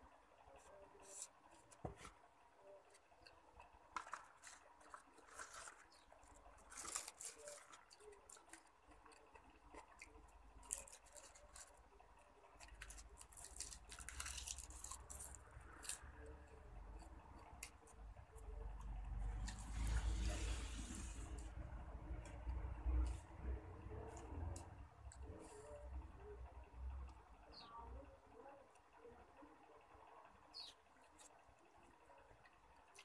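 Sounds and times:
crisp crackles and clicks: 0:02.8 - 0:20.1
chewing and crunching: 0:03.3 - 0:20.2.

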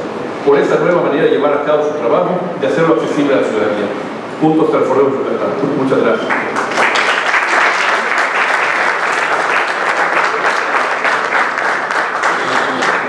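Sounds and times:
audience applauding: 0:06.3 - 0:13.0.

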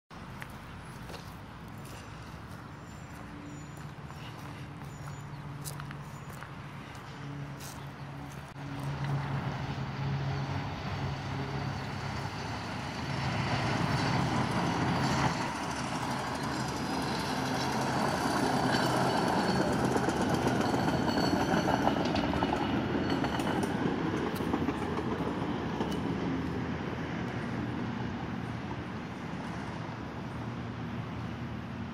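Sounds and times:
truck engine: 0:00.1 - 0:31.7
truck wheels rolling on rails: 0:07.8 - 0:27.7.

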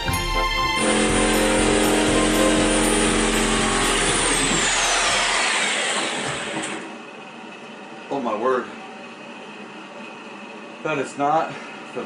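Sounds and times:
reciprocating saw cutting: 0:00.8 - 0:07.0.

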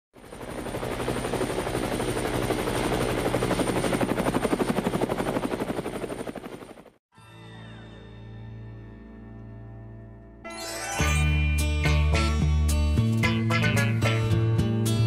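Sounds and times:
helicopter rotor blades chopping: 0:00.2 - 0:07.0
soft chiming music: 0:10.4 - 0:13.0.

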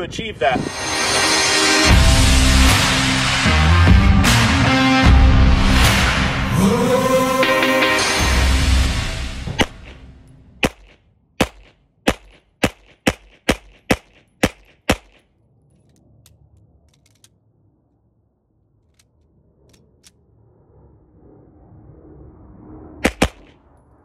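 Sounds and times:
pistol shots: 0:10.6 - 0:15.2, 0:23.0 - 0:23.5
faint clicks of pistol handling: 0:15.1 - 0:17.4.

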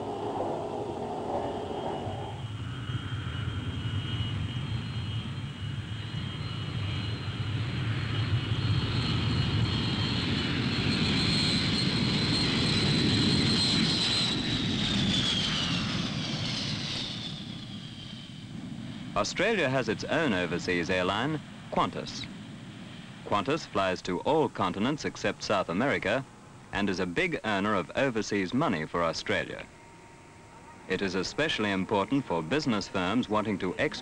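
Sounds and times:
jet airliner passing: 0:00.0 - 0:34.0.

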